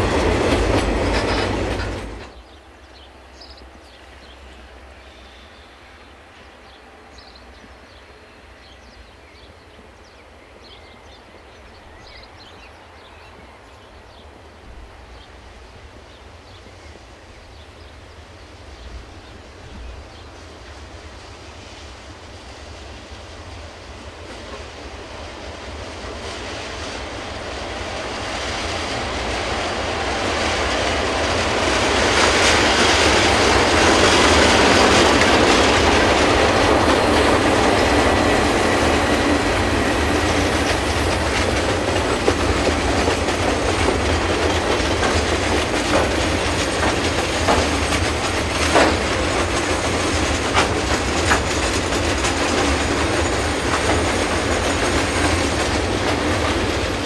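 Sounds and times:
wheels clacking over rail joints: 0:00.0 - 0:03.1, 0:24.0 - 0:57.0
diesel locomotive passing: 0:00.0 - 0:57.0.

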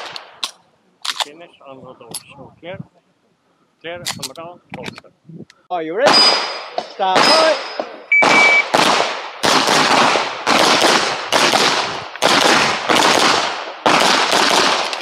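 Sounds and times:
pistol shots with echo: 0:06.0 - 0:15.0
shot timer beep: 0:07.2 - 0:08.7.

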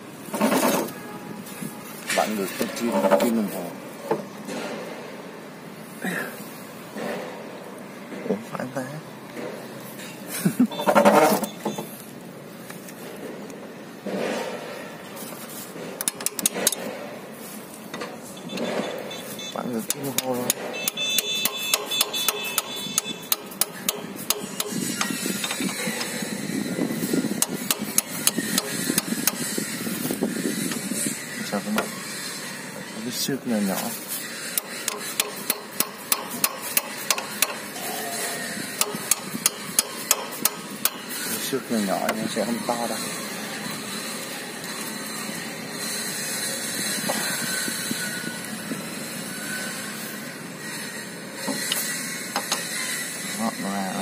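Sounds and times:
outdoor background hiss: 0:00.0 - 0:14.1
socket wrench clicking: 0:16.0 - 0:16.8, 0:34.6 - 0:37.6, 0:38.8 - 0:41.0
low rubbing noise: 0:40.7 - 0:54.0.

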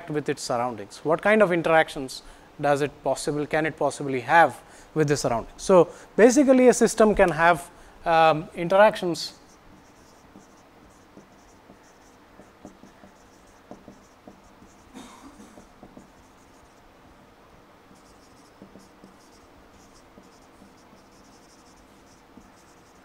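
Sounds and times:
marker squeaking on whiteboard: 0:09.3 - 0:16.8, 0:17.9 - 0:23.0
marker tip knocks: 0:11.1 - 0:14.8, 0:15.6 - 0:16.2, 0:18.4 - 0:19.2.

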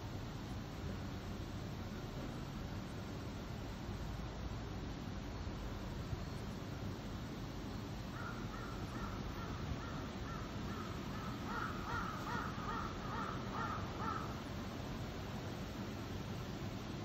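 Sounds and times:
steady background hiss: 0:00.0 - 0:17.0
crow cawing: 0:08.1 - 0:14.4.

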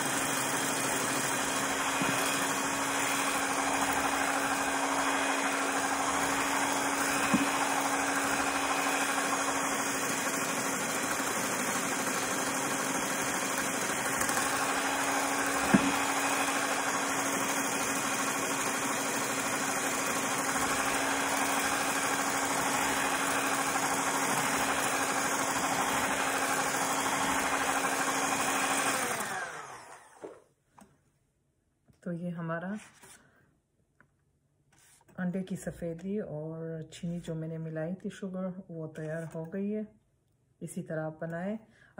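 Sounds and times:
electric hand mixer whipping: 0:00.0 - 0:30.4.

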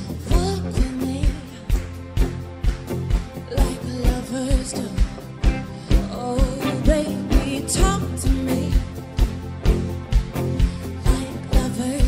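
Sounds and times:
person singing: 0:00.0 - 0:02.2, 0:03.4 - 0:09.1, 0:10.9 - 0:12.0
live rock band playing: 0:00.0 - 0:12.0.

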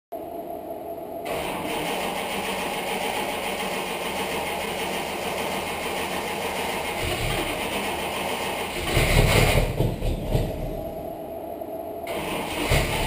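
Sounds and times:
car engine starting and idling: 0:01.2 - 0:11.0, 0:12.1 - 0:13.0.

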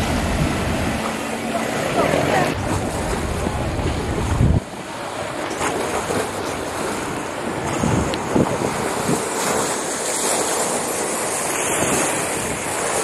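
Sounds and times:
water lapping against shore: 0:00.0 - 0:13.0
wind buffeting microphone: 0:00.0 - 0:13.0
heavy low rumble: 0:01.6 - 0:04.7.

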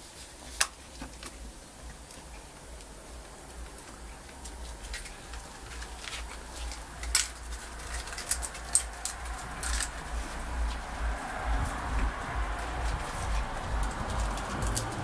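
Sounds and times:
low rumble: 0:01.4 - 0:15.0
dog claws clicking on concrete: 0:04.8 - 0:09.9, 0:13.8 - 0:15.0.

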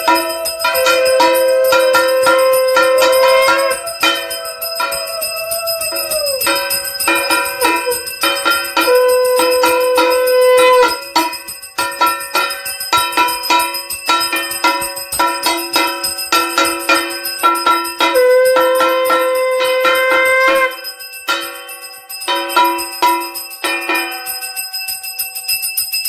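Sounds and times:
conch shell blowing: 0:00.0 - 0:11.5, 0:17.8 - 0:21.0
hand bell ringing rapidly: 0:00.0 - 0:26.0.

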